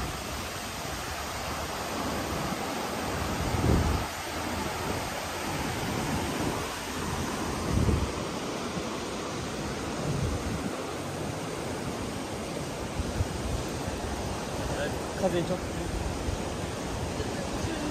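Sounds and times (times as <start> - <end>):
wind buffeting microphone: 0.0 - 11.4
river water rushing over weir: 0.0 - 17.9.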